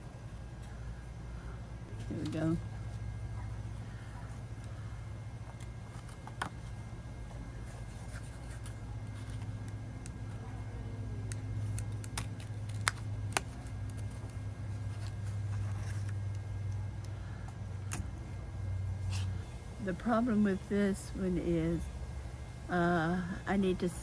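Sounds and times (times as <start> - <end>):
steady low hum: 0.0 - 24.0
cardstock being handled: 7.6 - 10.2, 11.2 - 17.2.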